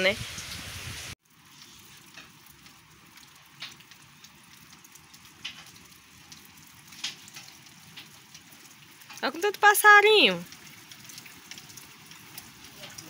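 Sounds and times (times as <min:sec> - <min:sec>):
light rain hiss: 0:00.0 - 0:13.0.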